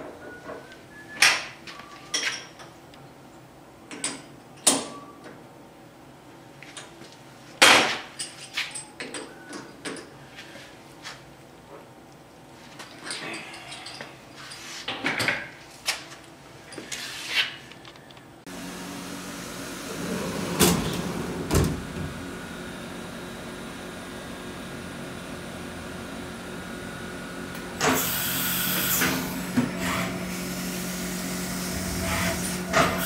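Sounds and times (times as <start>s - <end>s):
machining centre humming: 18.5s - 33.0s.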